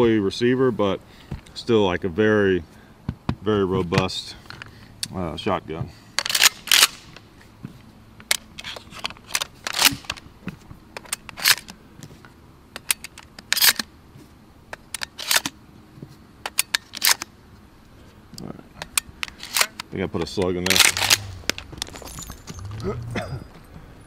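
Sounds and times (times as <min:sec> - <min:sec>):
shotgun shells clicking into magazine: 0:18.8 - 0:22.1
shells rattling in hand: 0:20.7 - 0:22.8.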